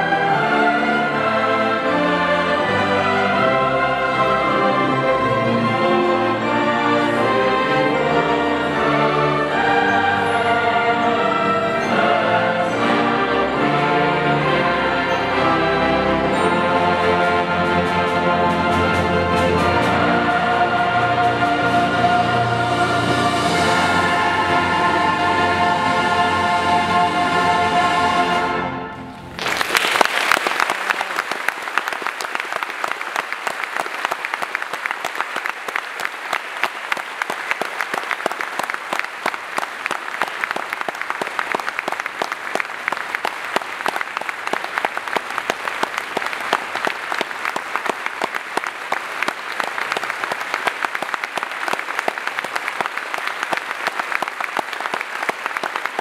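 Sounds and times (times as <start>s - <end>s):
choir and strings holding chord: 0.0s - 29.3s
audience applause: 29.3s - 56.0s.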